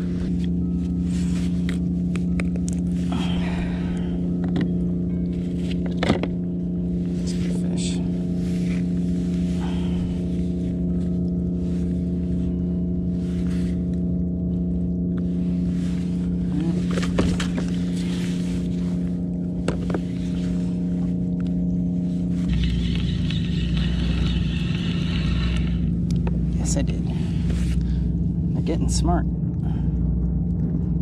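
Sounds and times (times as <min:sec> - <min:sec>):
deep rumble: 0:00.0 - 0:31.0
engine droning: 0:00.0 - 0:31.0
high whirring: 0:22.4 - 0:27.9.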